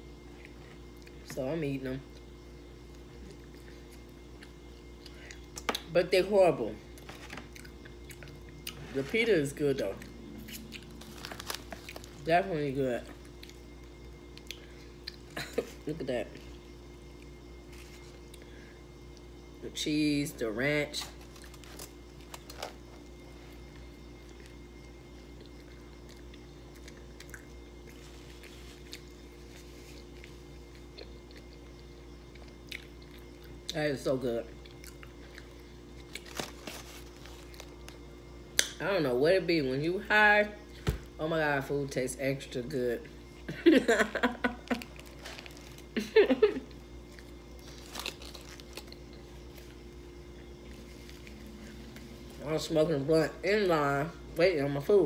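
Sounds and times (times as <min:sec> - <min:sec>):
steady low hum: 0:00.0 - 0:55.0
person chewing: 0:10.0 - 0:12.2, 0:25.3 - 0:33.7, 0:47.0 - 0:52.2
aluminium foil crinkling: 0:10.4 - 0:12.4, 0:20.9 - 0:23.0, 0:36.0 - 0:38.0, 0:44.6 - 0:46.6, 0:47.2 - 0:50.0.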